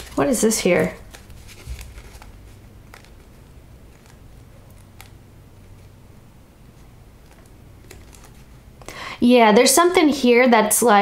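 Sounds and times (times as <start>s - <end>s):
cards clicking and sliding: 0.0s - 5.2s, 6.8s - 8.5s
low steady hum: 0.0s - 11.0s.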